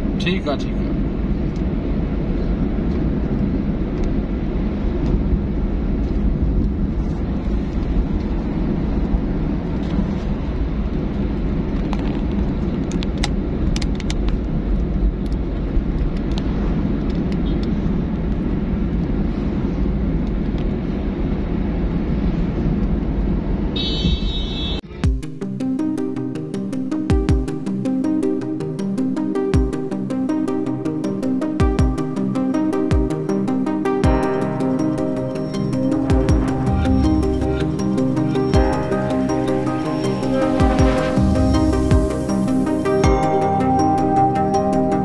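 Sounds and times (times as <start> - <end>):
car engine and road noise: 0.0 - 45.0
music: 24.9 - 45.0.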